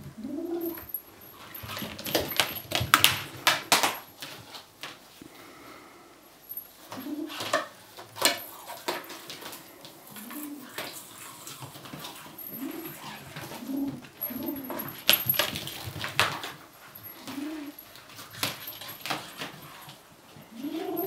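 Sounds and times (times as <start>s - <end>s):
kitten hooting growls: 20.5s - 21.0s.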